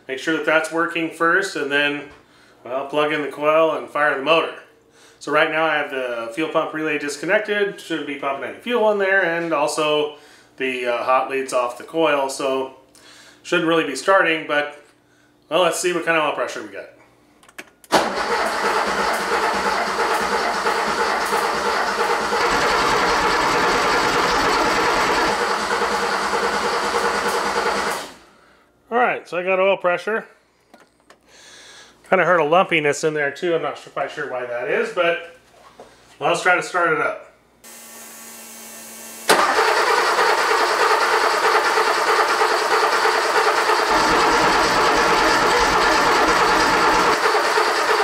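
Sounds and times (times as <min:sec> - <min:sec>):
starter cranking engine: 0:17.9 - 0:28.2, 0:39.3 - 0:48.0.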